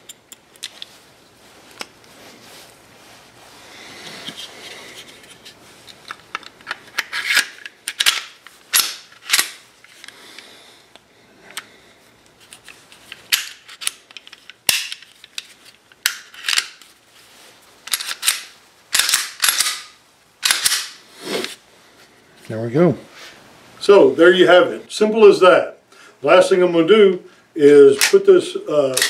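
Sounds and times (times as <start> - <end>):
sharp metal clicks: 17.9 - 21.0.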